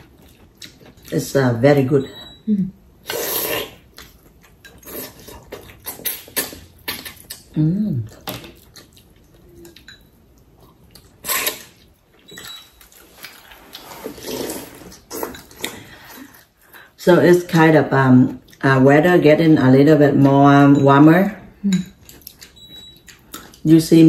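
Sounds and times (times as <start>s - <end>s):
person humming: 7.6s - 8.1s.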